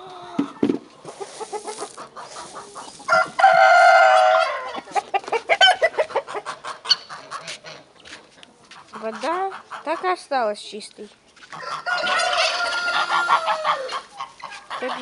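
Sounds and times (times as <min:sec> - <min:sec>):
chickens clucking: 0:00.0 - 0:10.9, 0:11.5 - 0:15.0
rooster crowing: 0:03.1 - 0:04.8, 0:11.6 - 0:14.0.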